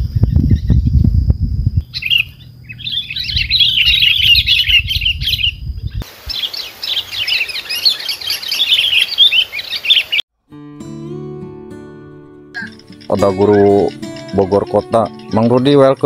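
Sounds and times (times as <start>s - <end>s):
birds chirping: 1.8s - 10.2s, 12.6s - 16.0s.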